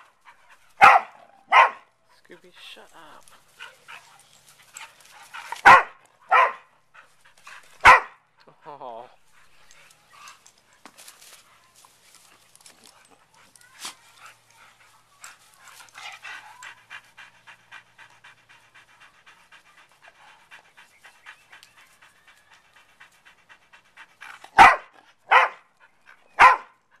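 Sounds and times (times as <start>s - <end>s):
dogs panting: 0.0s - 27.0s
dog barking: 0.8s - 1.9s, 5.6s - 6.7s, 7.8s - 8.2s, 24.5s - 25.7s, 26.4s - 26.8s.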